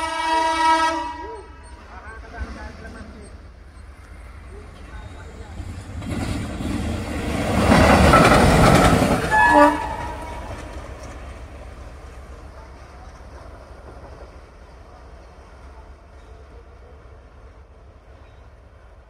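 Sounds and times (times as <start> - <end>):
locomotive air horn blast: 0.0 - 1.4, 9.3 - 10.5
low locomotive rumble: 0.0 - 19.0.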